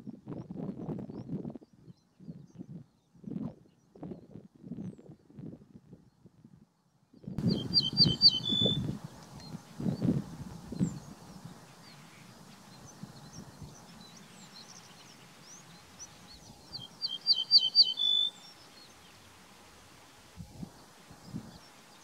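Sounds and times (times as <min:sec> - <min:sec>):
bird singing: 0:07.4 - 0:19.5.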